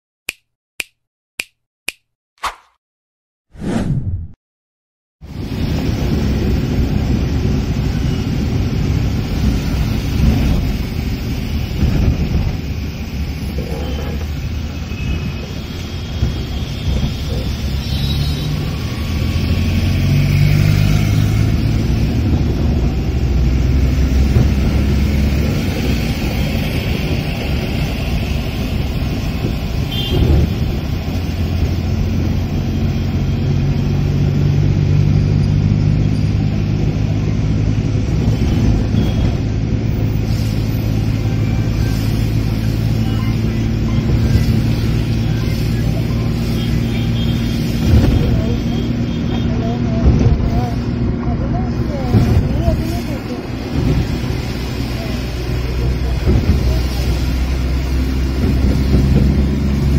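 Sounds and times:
tyre and road noise: 5.2 - 59.9
car engine hum: 18.7 - 59.9.

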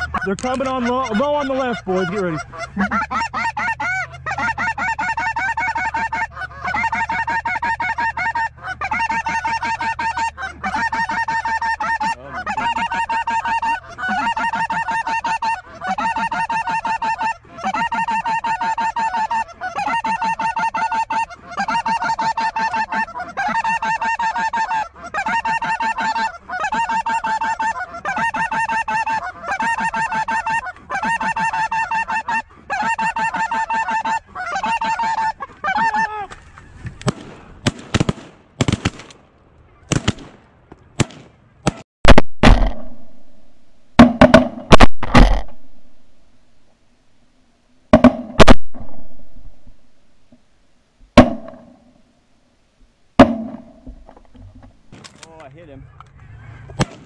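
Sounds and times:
geese honking: 0.0 - 37.1, 55.6 - 56.9.

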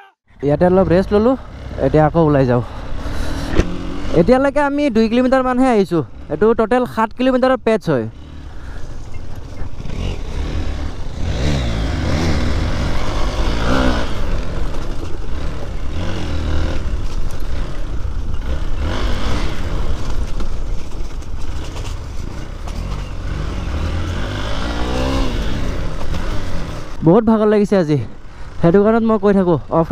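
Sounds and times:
dirt bike engine revving: 0.7 - 6.8, 7.9 - 29.8.

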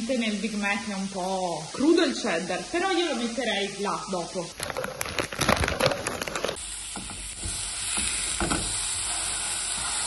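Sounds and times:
beef patties sizzling in a pan: 0.0 - 4.5, 6.2 - 10.0
plastic packet crinkling: 4.6 - 6.6.

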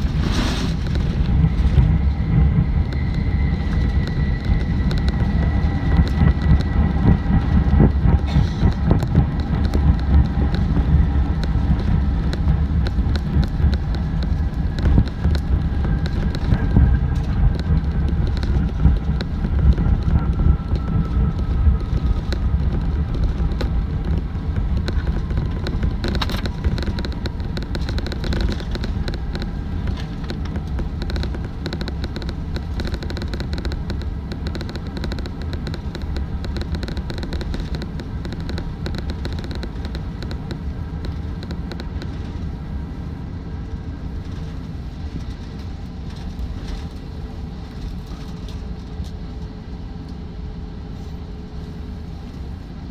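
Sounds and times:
aircraft cabin rumble: 0.0 - 52.9
jet engine whine: 0.0 - 52.9
rattles: 11.8 - 42.4.

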